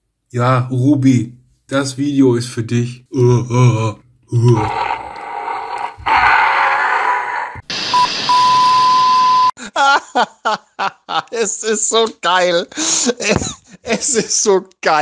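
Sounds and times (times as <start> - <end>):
person speaking: 0.6 - 5.0
hissing static: 7.5 - 9.5
steady beep tone: 7.9 - 9.5.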